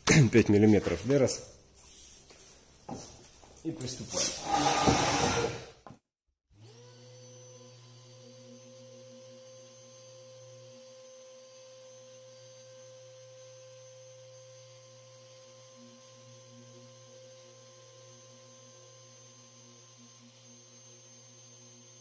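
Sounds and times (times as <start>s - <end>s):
electric sander humming: 6.6s - 22.0s.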